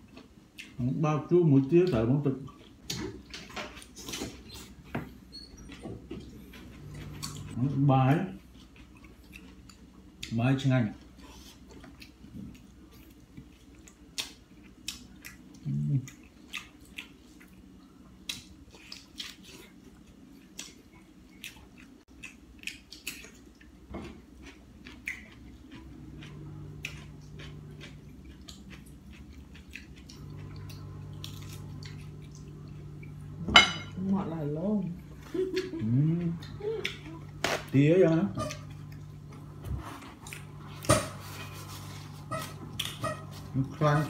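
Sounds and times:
person chewing food: 0:00.0 - 0:01.0, 0:02.4 - 0:07.7, 0:08.3 - 0:10.4, 0:11.0 - 0:33.4, 0:35.0 - 0:44.0
low steady hum: 0:00.0 - 0:44.0.

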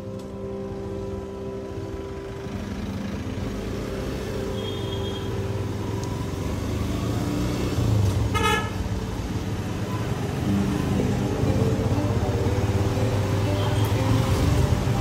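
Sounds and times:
horn beep: 0:04.5 - 0:05.4.

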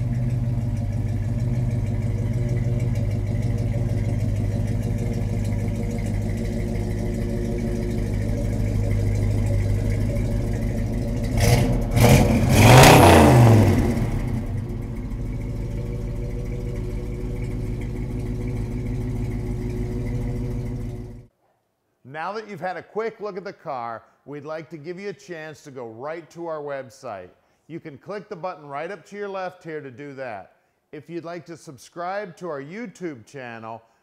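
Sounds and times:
car engine idling and revving: 0:00.0 - 0:21.3.

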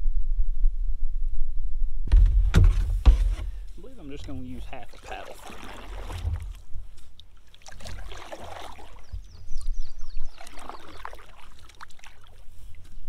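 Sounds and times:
kayak paddle splashing: 0:02.6 - 0:13.0.

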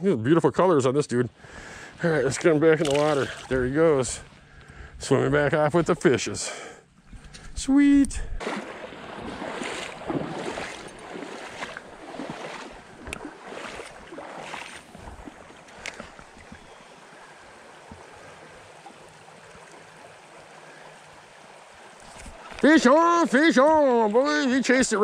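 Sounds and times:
creek water running over rocks: 0:01.4 - 0:06.5, 0:07.1 - 0:25.0.

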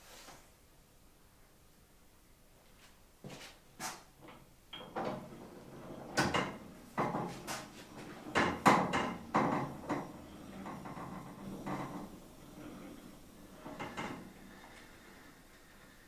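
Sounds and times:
hard objects knocking and clattering: 0:06.2 - 0:07.6, 0:08.3 - 0:12.1.

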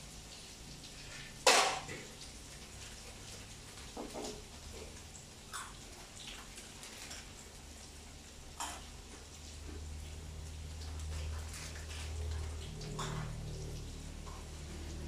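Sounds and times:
kitchen utensils clicking and knocking: 0:01.4 - 0:01.9.

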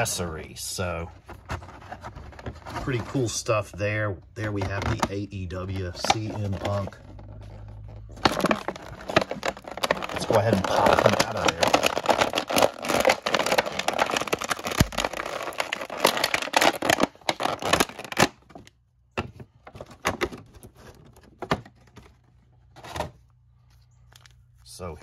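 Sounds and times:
plastic packaging crinkling: 0:04.5 - 0:18.7.

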